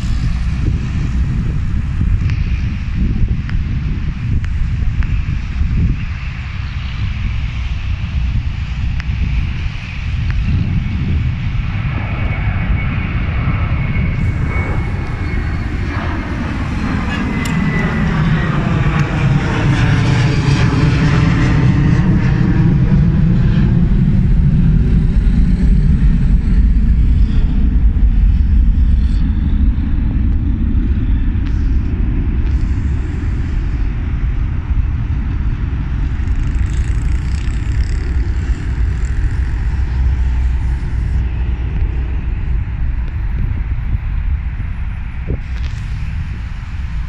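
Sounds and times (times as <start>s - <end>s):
highway traffic rumble: 0.0s - 47.0s
engine drone sliding down in pitch: 11.9s - 44.0s.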